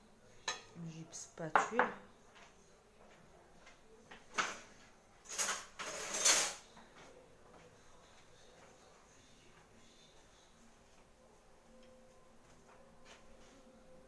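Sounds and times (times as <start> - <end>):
kitchen utensils scraping: 4.4 - 6.7.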